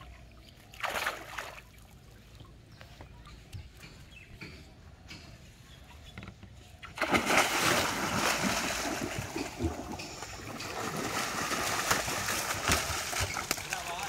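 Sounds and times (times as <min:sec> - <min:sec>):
fish thrashing in water: 0:06.9 - 0:13.9
water splashing against boat: 0:06.9 - 0:14.0.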